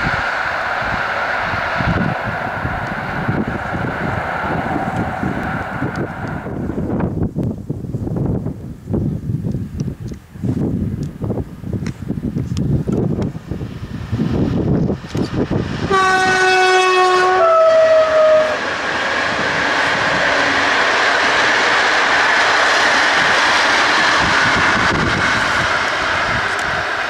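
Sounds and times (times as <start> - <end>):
train wheels on rails: 0.0 - 27.0
locomotive horn two-tone warning: 15.9 - 18.6.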